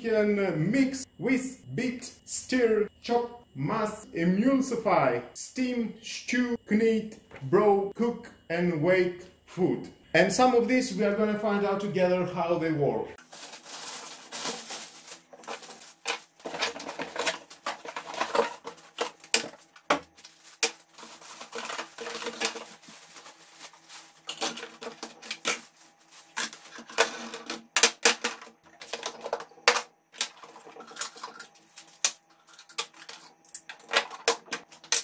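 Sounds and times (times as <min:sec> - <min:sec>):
plastic bag crinkling: 0:13.2 - 0:27.4.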